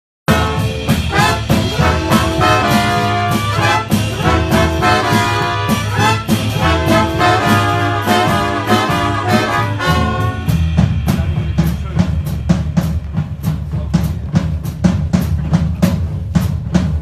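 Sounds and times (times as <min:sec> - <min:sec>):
trombone section: 0:00.3 - 0:11.3
big band swing music: 0:00.3 - 0:17.0.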